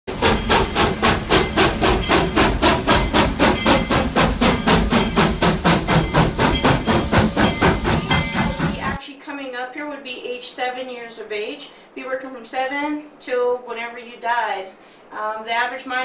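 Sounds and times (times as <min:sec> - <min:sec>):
steam locomotive chuffing: 0:00.1 - 0:09.0.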